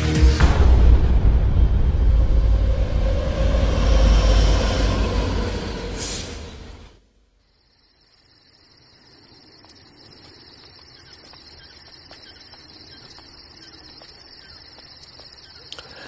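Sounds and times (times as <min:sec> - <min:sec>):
crickets chirring: 0:07.2 - 0:16.0.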